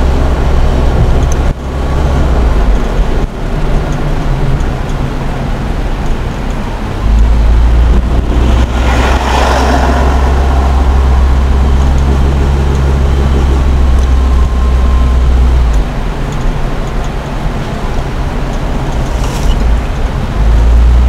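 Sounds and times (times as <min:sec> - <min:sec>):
car engine and road noise: 0:00.0 - 0:21.0
heavy low drone: 0:06.5 - 0:16.1.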